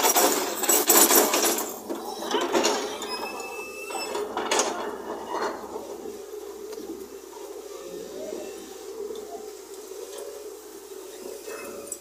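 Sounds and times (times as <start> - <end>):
rubble clattering and crashing: 0.0 - 3.4
excavator engine humming: 0.0 - 12.0.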